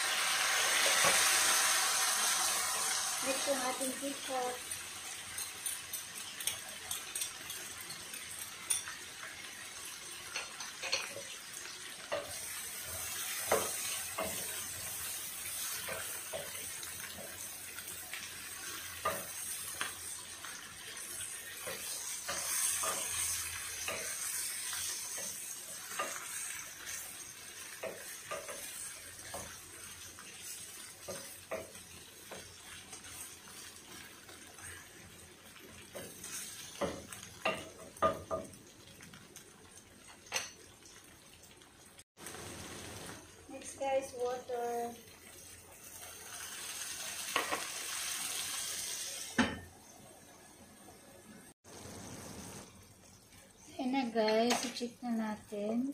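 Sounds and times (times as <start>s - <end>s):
food sizzling in frying pan: 0.0s - 55.9s
spatula knocking and scraping pan: 12.0s - 17.5s, 18.2s - 34.9s, 35.8s - 38.6s.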